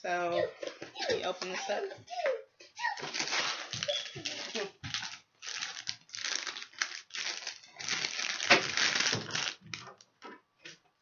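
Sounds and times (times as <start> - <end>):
plastic bag crinkling: 3.0 - 10.1.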